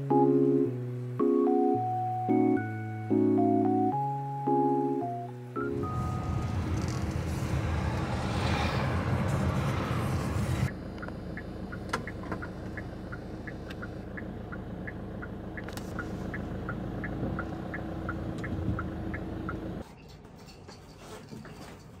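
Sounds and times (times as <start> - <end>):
car cabin rumble: 5.6 - 19.8
turn signal ticking: 10.7 - 19.8.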